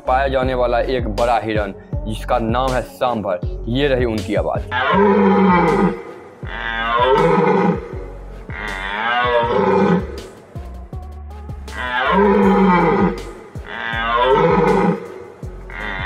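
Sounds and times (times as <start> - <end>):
deer stag calling: 4.7 - 10.3, 11.7 - 16.0.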